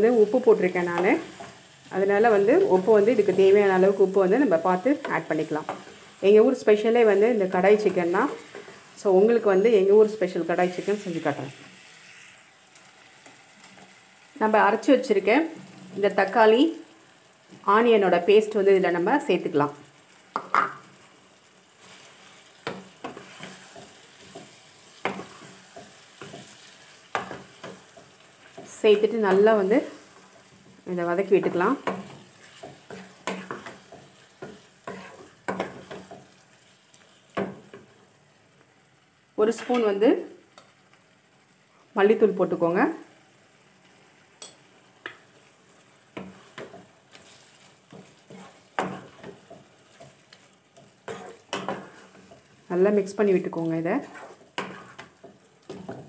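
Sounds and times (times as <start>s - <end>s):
faint sizzle: 0.0s - 56.0s
wooden spatula scraping a pan: 21.8s - 30.8s, 31.4s - 36.4s, 46.2s - 52.6s, 53.6s - 56.0s.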